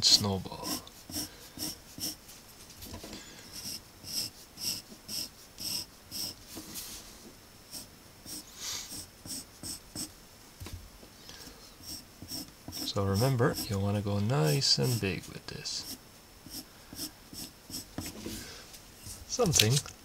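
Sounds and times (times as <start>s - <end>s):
pencil scratching on paper: 0.0s - 2.2s, 3.5s - 6.4s, 7.7s - 10.1s, 11.8s - 18.2s.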